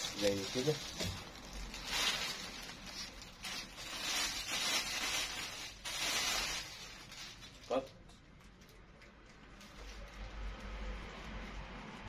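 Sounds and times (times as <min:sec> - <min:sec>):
fabric garment rustling: 0:00.0 - 0:07.9.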